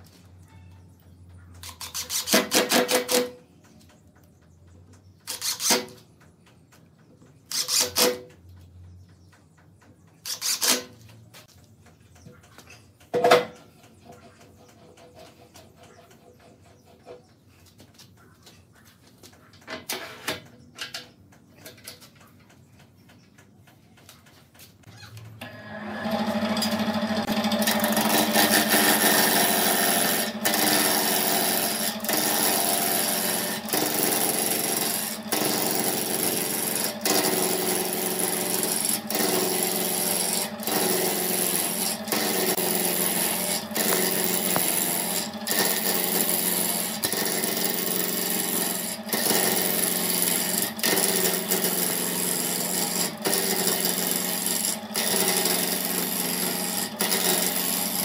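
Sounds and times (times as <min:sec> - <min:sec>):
lathe motor humming: 0:25.4 - 0:58.0
tool cutting wood on lathe: 0:25.4 - 0:58.0.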